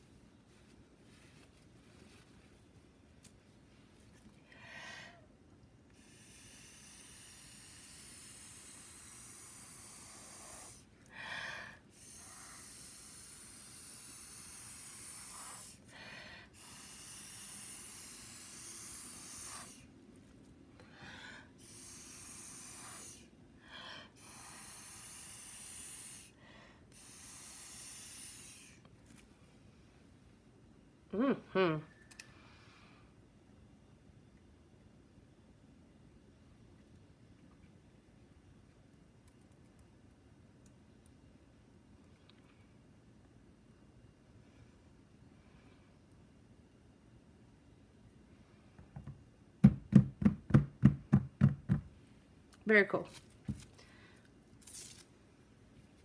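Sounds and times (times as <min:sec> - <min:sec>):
blowing through a straw: 0:06.0 - 0:10.9, 0:11.9 - 0:15.8, 0:16.5 - 0:19.9, 0:21.6 - 0:23.3, 0:24.2 - 0:26.3, 0:26.9 - 0:28.8
quick breaths: 0:53.6 - 0:54.4.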